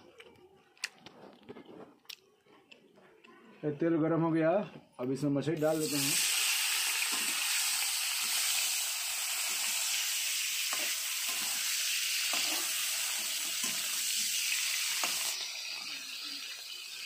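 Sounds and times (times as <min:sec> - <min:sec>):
fish sizzling in oil: 0:05.6 - 0:17.0.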